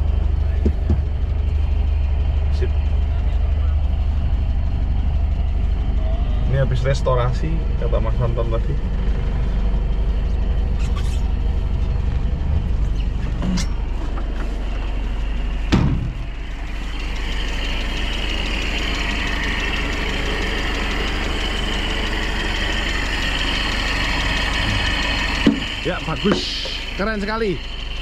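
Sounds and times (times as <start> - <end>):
engine idling: 0.0 - 28.0
thump: 15.7 - 16.2.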